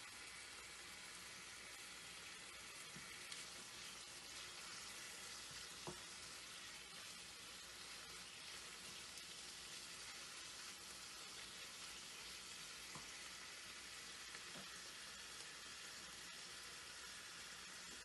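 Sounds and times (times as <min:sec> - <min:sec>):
pork sizzling in a pan: 0:00.0 - 0:18.0
spatula tapping pan: 0:02.9 - 0:13.3.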